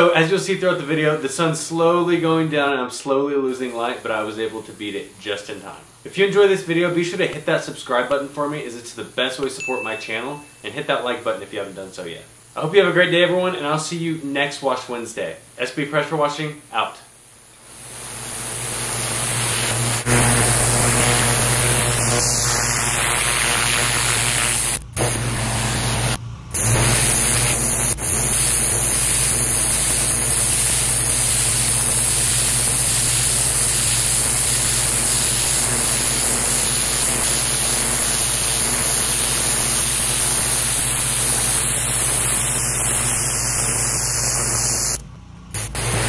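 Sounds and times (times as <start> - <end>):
pressure washer spraying concrete: 17.6 - 46.0.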